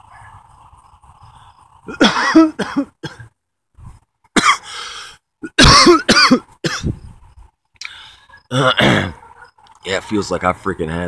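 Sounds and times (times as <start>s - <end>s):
man coughing: 1.9s - 3.3s, 4.4s - 4.7s, 5.4s - 6.9s, 8.6s - 9.2s.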